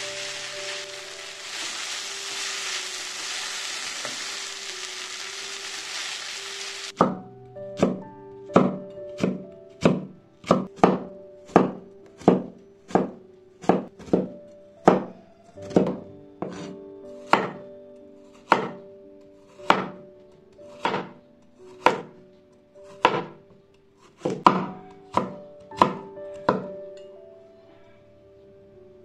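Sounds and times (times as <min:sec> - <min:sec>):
soft background music: 0:00.0 - 0:29.0
cleaver chopping on wooden board: 0:20.8 - 0:21.1, 0:23.0 - 0:23.3, 0:24.2 - 0:26.7.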